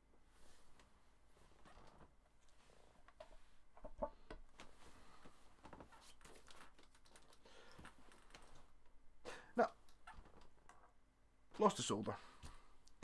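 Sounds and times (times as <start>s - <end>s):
small clicks of wires and tool: 5.6s - 8.8s.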